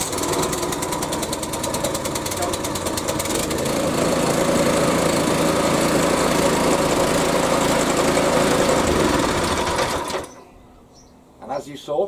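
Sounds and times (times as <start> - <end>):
petrol engine running: 0.0 - 10.4.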